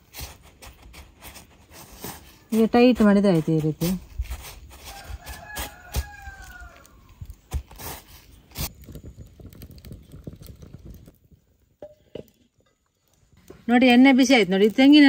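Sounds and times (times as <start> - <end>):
rooster crowing: 4.8 - 7.2.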